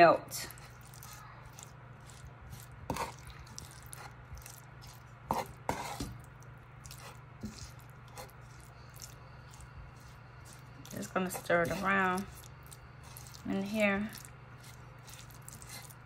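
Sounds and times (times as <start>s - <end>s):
steady low hum: 0.0s - 16.0s
wooden spatula scraping a pan: 5.3s - 6.2s, 9.6s - 12.4s.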